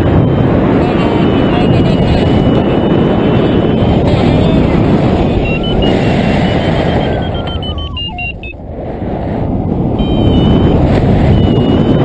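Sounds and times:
wind rushing over microphone: 0.0s - 12.0s
variometer beeping electronic tones: 3.4s - 8.6s, 10.0s - 12.0s.

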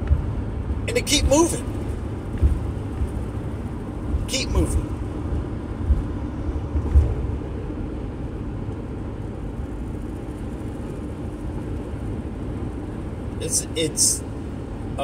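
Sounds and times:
road and engine rumble: 0.0s - 15.0s
low thumps: 1.7s - 7.4s.

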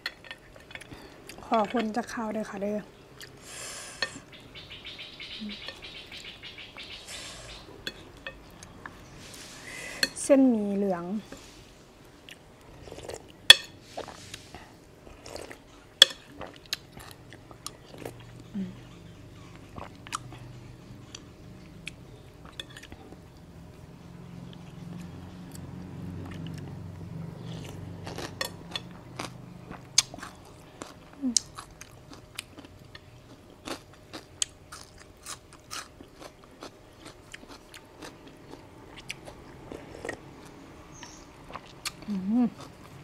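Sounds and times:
person chewing with mouth smacks: 19.4s - 23.2s, 27.4s - 43.0s.

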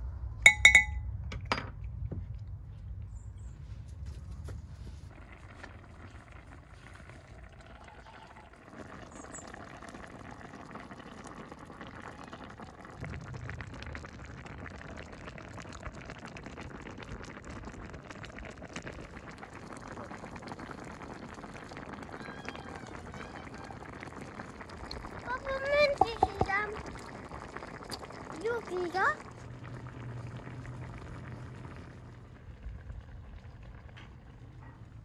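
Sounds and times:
stew bubbling and spluttering: 4.6s - 35.0s
beaten egg pouring: 18.6s - 32.4s.

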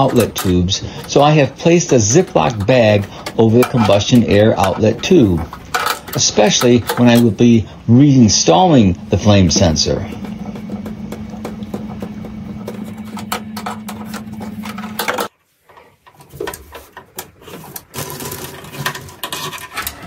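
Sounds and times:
steady hum: 0.0s - 15.3s
parts rustling: 0.0s - 20.0s.

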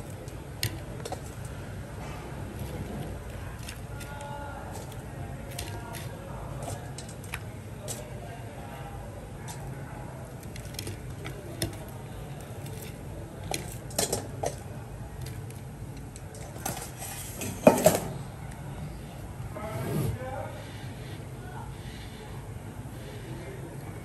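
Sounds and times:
utensils and dishes clattering: 12.6s - 14.6s, 16.2s - 18.2s.

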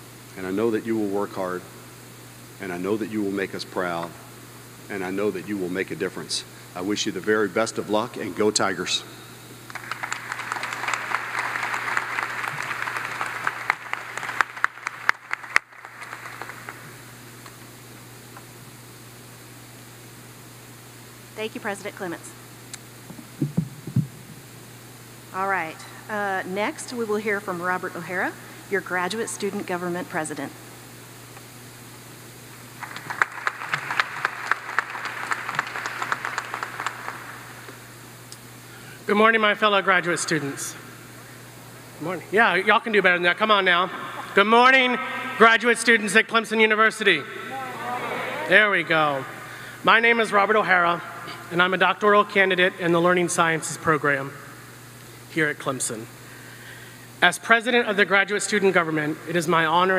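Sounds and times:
audience applause: 9.7s - 17.0s, 32.8s - 37.7s, 47.5s - 49.3s.

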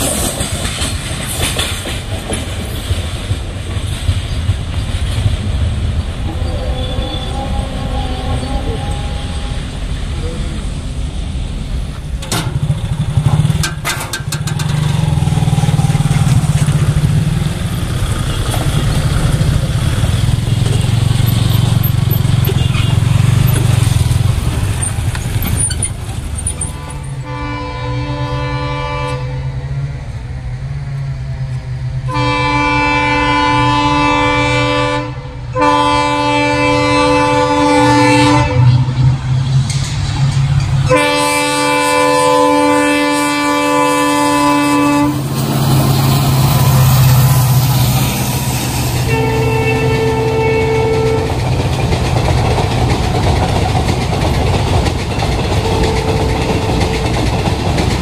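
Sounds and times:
road vehicle engines running: 0.0s - 27.7s, 29.1s - 32.3s, 33.7s - 58.0s
locomotive horn blasts: 6.2s - 10.0s, 26.6s - 29.7s, 32.1s - 39.2s, 40.8s - 45.3s, 49.0s - 51.5s, 55.6s - 57.3s.

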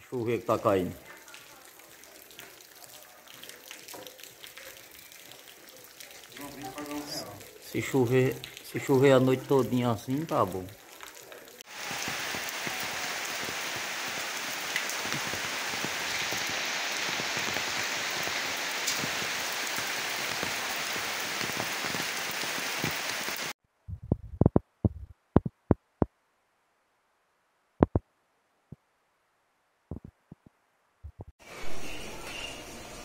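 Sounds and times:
heavy rain falling: 3.4s - 23.6s.

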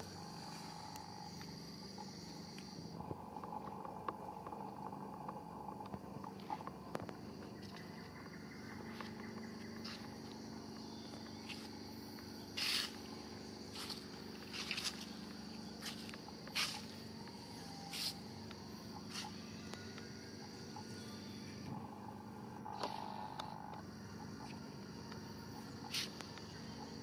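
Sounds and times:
insect chirring: 0.0s - 27.0s.

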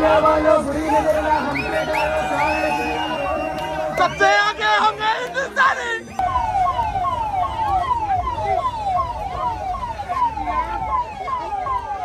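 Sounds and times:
street noise rumble: 0.0s - 12.0s
electronic siren sweeping: 6.1s - 12.0s.

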